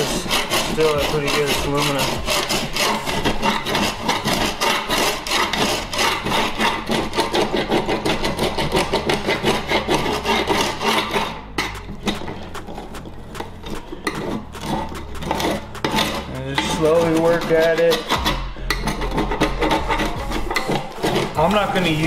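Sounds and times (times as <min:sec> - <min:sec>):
scraper blade scraping metal tray: 0:00.0 - 0:22.0.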